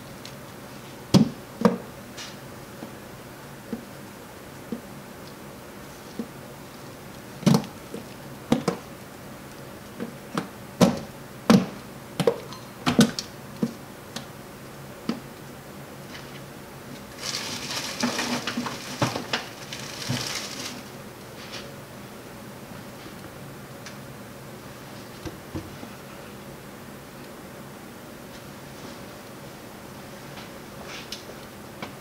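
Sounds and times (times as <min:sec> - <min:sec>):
rustling: 0:17.1 - 0:21.6.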